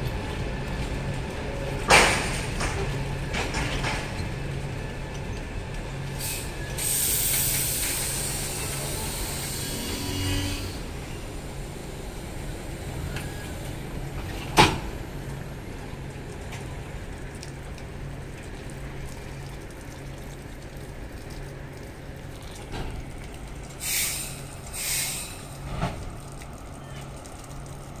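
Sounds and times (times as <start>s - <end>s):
air brakes hissing: 6.2s - 10.9s, 23.8s - 25.9s.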